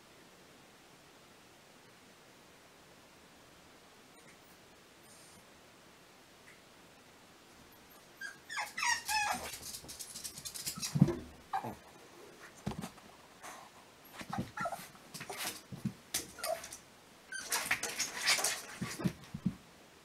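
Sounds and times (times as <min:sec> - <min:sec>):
dog whining and whimpering: 0:07.8 - 0:09.6, 0:10.7 - 0:11.8, 0:14.3 - 0:14.9.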